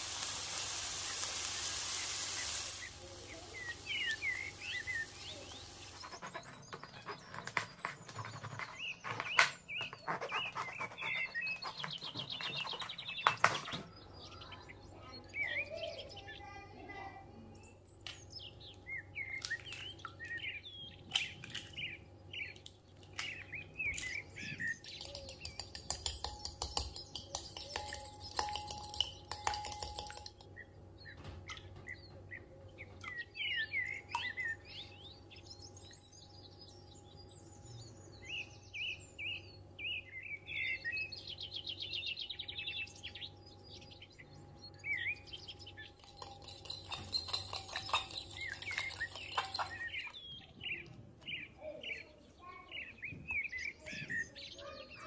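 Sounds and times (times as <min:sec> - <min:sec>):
small birds chirping: 0:00.0 - 0:55.0
utensils clinking on glass bowl: 0:24.8 - 0:30.5, 0:46.0 - 0:50.3.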